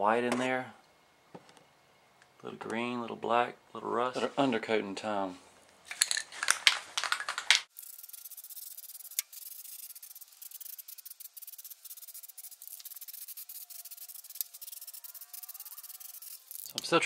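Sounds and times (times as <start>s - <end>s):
aerosol can rattling: 6.0s - 16.8s
aerosol spray hissing: 7.7s - 16.8s.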